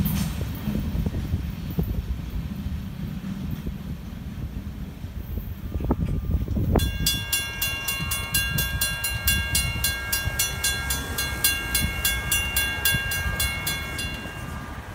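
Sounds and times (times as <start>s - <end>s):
railroad crossing bell ringing: 5.6s - 14.9s.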